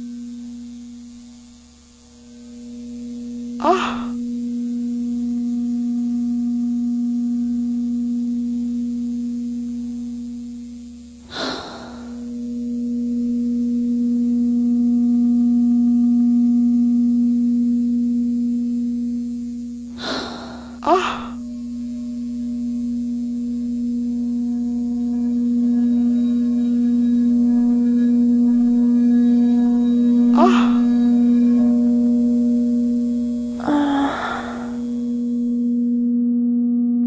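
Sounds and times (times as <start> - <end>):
tattoo machine buzzing: 0.0 - 15.6, 16.8 - 36.0
short hissing rush: 11.3 - 12.2, 20.0 - 21.4.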